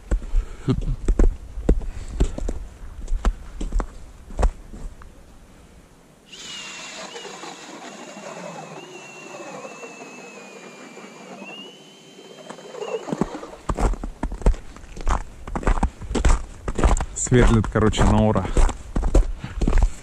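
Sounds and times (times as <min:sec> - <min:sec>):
cordless drill auger grinding ice: 0:06.3 - 0:14.0.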